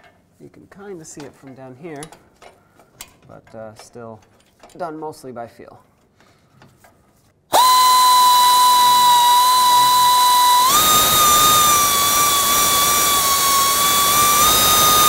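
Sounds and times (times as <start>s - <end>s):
air ratchet whining: 7.5s - 15.0s.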